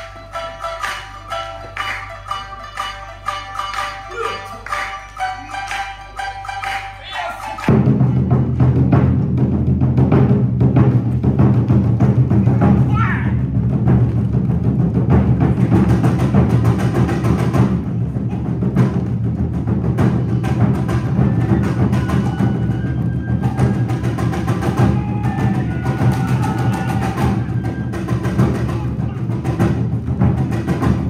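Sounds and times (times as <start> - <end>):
high melody line: 0.0 - 7.8
taiko drums and percussion: 0.0 - 31.0.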